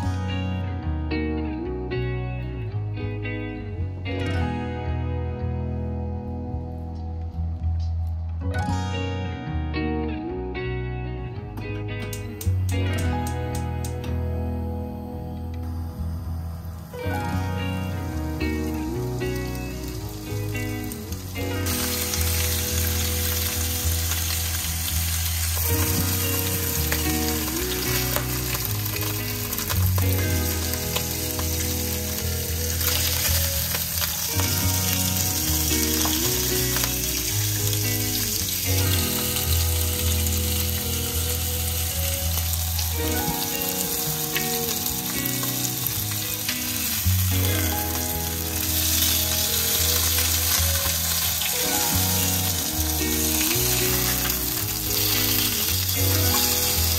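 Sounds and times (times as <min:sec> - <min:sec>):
soft background music: 0:00.0 - 0:56.9
fish sizzling in pan: 0:15.8 - 0:56.9.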